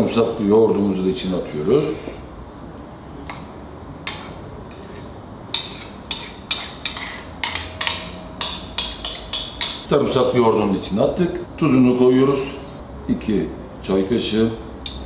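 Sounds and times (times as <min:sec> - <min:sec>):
metal spoon clinking against bowl: 0:05.5 - 0:09.9.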